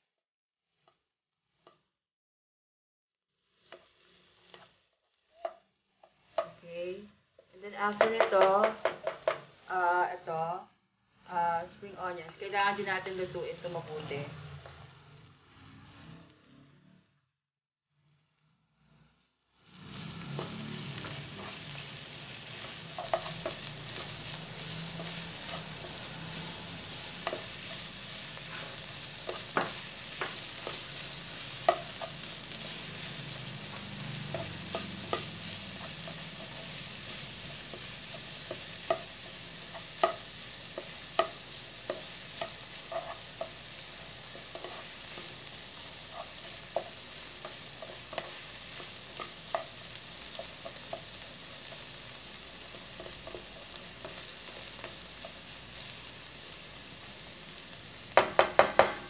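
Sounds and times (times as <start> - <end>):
food sizzling in a wok: 0.7 - 1.9, 3.3 - 10.3, 19.5 - 59.0
spatula stirring and scraping: 3.4 - 6.6, 23.0 - 59.0.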